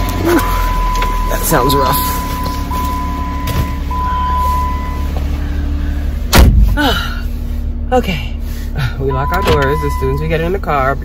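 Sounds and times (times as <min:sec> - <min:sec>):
high warning tone: 0:00.0 - 0:05.8, 0:09.1 - 0:10.6
car door slamming: 0:03.4 - 0:03.8, 0:06.3 - 0:06.8, 0:09.3 - 0:09.8.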